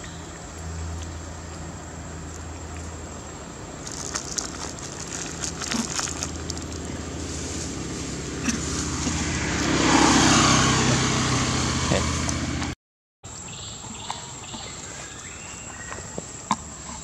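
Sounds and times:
road vehicle passing: 0:00.0 - 0:12.8
dry crackles and rustles: 0:03.8 - 0:09.0.

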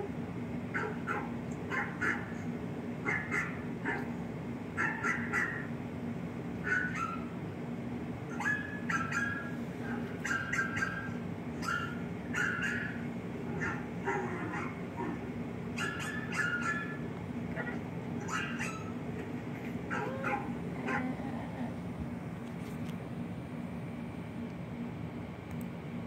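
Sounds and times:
steady low hum: 0:00.0 - 0:26.0
dogs barking and yipping: 0:00.7 - 0:05.8, 0:06.6 - 0:07.4, 0:08.3 - 0:21.5.

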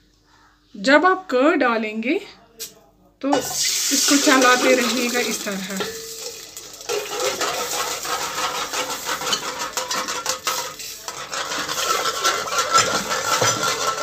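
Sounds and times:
metal whisk scraping a pot: 0:06.9 - 0:14.0.

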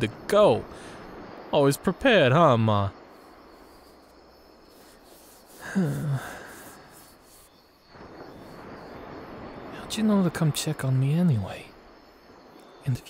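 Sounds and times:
faint background noise: 0:00.0 - 0:13.0
man's wordless vocal sound: 0:05.6 - 0:06.7.

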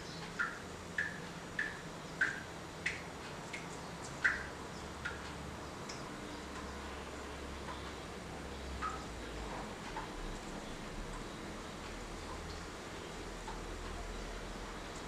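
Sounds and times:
faint light ticks: 0:00.2 - 0:06.7, 0:13.4 - 0:14.0.

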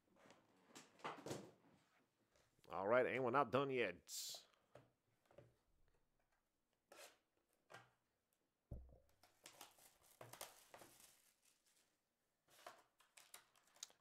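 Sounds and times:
tearing and rustling cardboard: 0:09.4 - 0:13.7.

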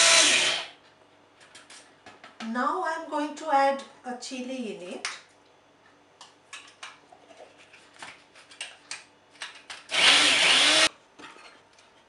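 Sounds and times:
electric spice grinder running: 0:00.0 - 0:00.7, 0:09.9 - 0:10.9.

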